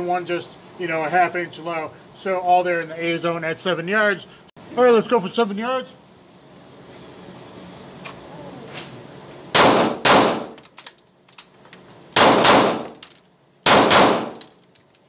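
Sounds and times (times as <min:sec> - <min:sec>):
pistol shots echoing indoors: 0:09.6 - 0:10.6, 0:12.2 - 0:13.0, 0:13.7 - 0:14.5.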